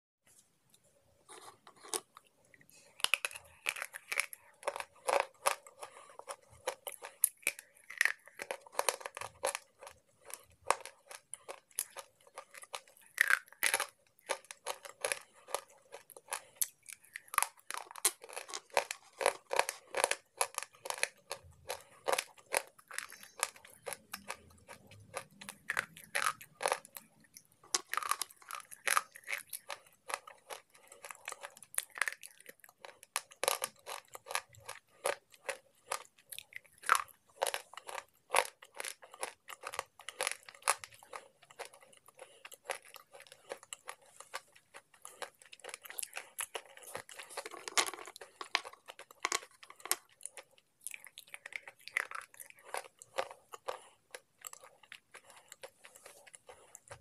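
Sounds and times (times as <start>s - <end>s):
slate pencils crunching: 2.8s - 57.0s.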